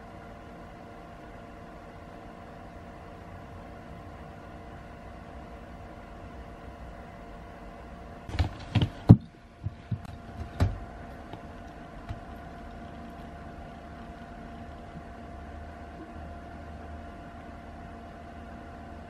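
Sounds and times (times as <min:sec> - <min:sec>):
faint steady hum: 0:00.0 - 0:19.0
knocks on plastic basket: 0:08.3 - 0:10.8.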